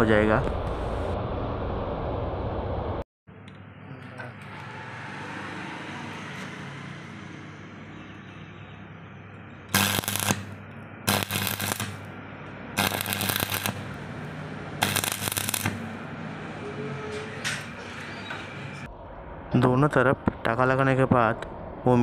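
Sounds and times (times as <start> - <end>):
steady low hum: 0.0 - 4.2, 9.1 - 16.7, 18.7 - 22.0
welding arc crackling: 9.7 - 16.0.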